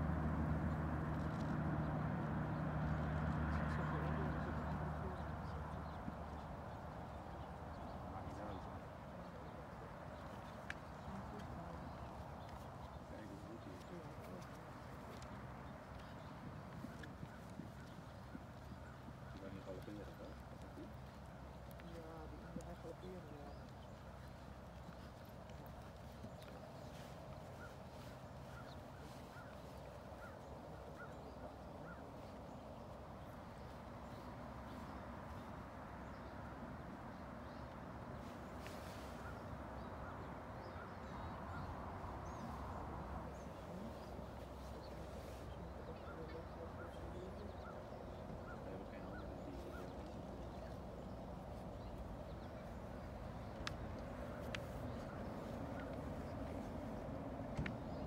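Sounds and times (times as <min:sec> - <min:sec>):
horse hoofbeats trotting on sand: 0:00.0 - 0:36.5
outdoor background noise: 0:00.0 - 0:58.0.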